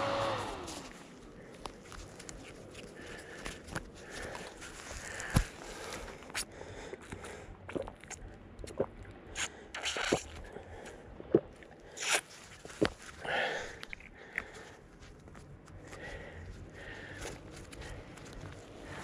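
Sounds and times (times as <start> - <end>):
dry leaves crunching: 0.0 - 6.2.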